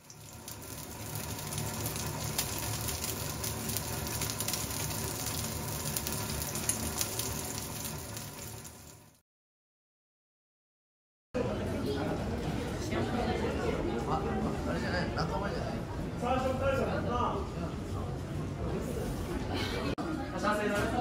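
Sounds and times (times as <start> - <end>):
steak sizzling in frying pan: 0.0 - 9.2.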